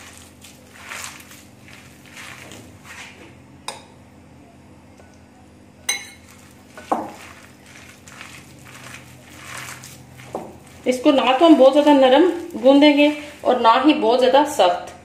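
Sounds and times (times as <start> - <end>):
hand squishing batter: 0.0 - 3.3, 6.2 - 14.0.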